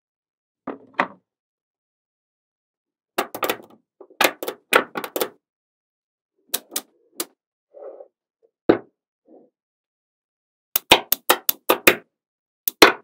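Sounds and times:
magnetic balls clicking together: 0:10.8 - 0:12.0, 0:12.7 - 0:13.0.

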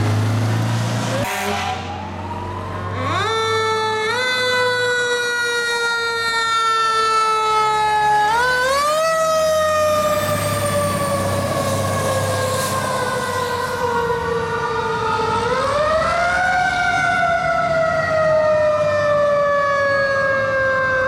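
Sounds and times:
truck engine rumble: 0:00.0 - 0:16.2
fire truck siren: 0:00.0 - 0:21.0.

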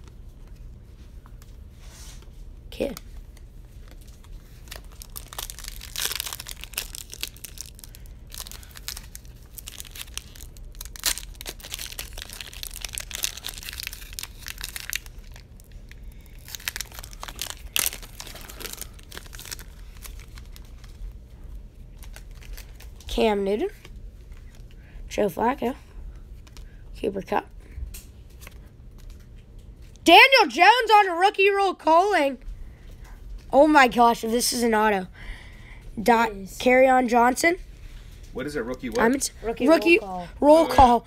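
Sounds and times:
card pack wrappers crinkling: 0:02.8 - 0:21.2, 0:21.8 - 0:23.1.

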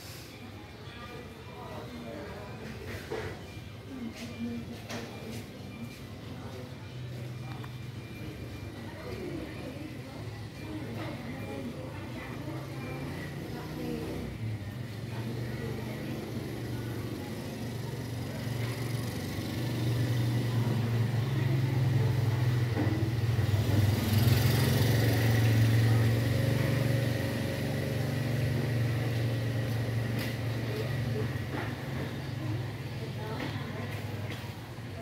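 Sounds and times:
vehicle engine passing by: 0:15.2 - 0:32.8.

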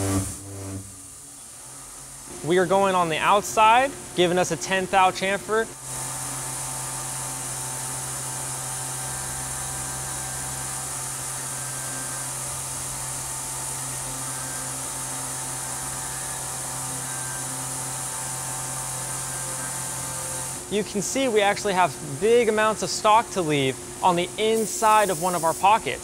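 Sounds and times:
milling machine humming: 0:00.0 - 0:04.2, 0:05.8 - 0:20.7
coolant hiss: 0:00.0 - 0:26.0.

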